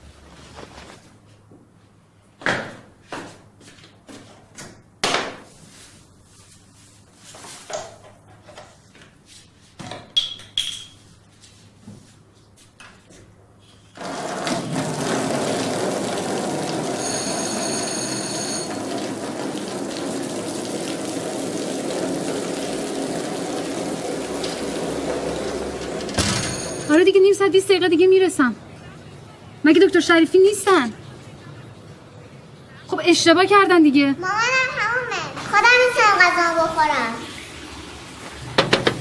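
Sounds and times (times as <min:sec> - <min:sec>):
water running onto tiled floor: 0:14.0 - 0:28.3, 0:34.4 - 0:39.0.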